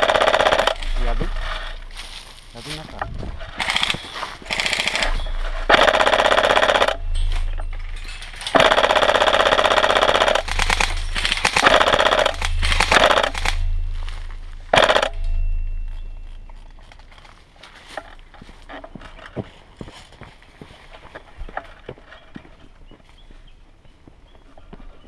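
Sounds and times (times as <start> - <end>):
airsoft rifle firing bursts: 0.0 - 1.7, 3.5 - 7.3, 8.4 - 13.7, 14.7 - 15.2.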